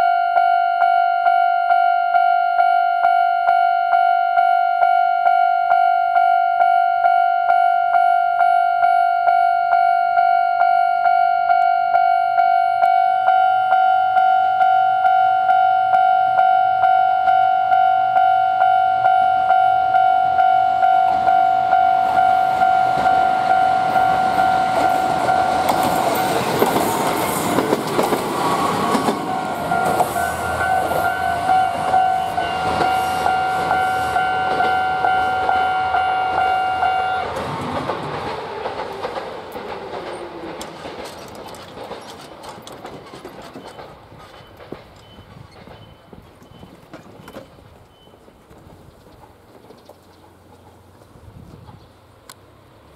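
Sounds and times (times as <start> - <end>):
level crossing bell ringing: 0.0 - 26.2, 29.2 - 37.3
train wheels clattering: 22.9 - 51.8.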